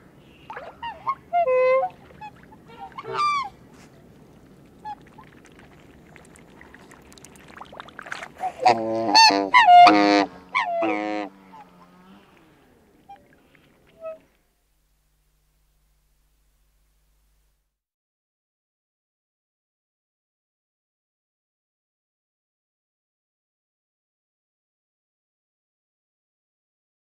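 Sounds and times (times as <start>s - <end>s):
swans calling and honking: 0.1s - 14.4s.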